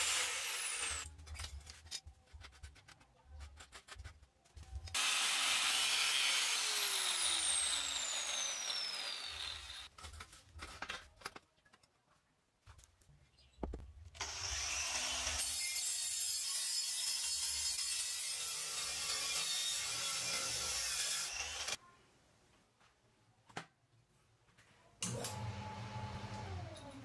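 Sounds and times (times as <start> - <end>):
angle grinder cutting pipe: 0.0 - 1.1, 5.0 - 9.9, 14.2 - 21.8
angle grinder grinding metal: 0.0 - 1.1, 5.0 - 9.9, 14.2 - 21.8.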